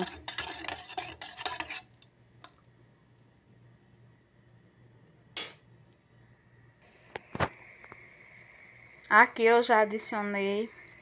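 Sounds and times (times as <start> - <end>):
metal spoon scraping a pot: 0.0 - 2.0.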